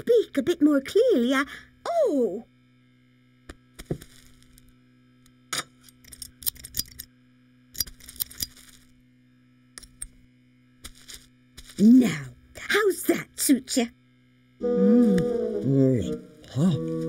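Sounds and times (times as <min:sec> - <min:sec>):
faint steady hum: 0:00.0 - 0:17.0
scissors snipping: 0:07.8 - 0:08.7.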